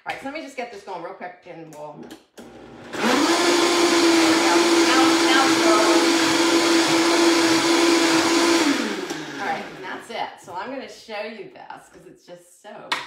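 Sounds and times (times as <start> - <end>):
blender motor whining: 2.4 - 10.0.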